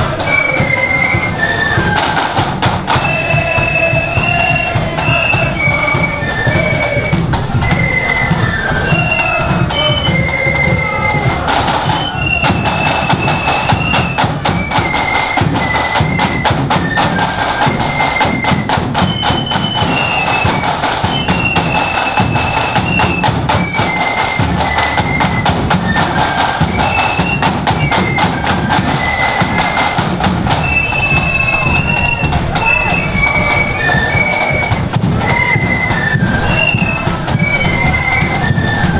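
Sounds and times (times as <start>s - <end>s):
flutes playing melody: 0.0s - 38.9s
snare drumming: 0.0s - 38.9s
bass drum beat: 1.4s - 14.6s, 24.5s - 35.6s.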